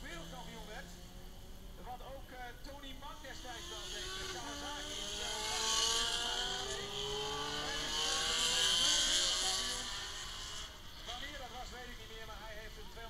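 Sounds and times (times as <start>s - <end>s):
racing motorcycles accelerating: 0.0s - 13.0s.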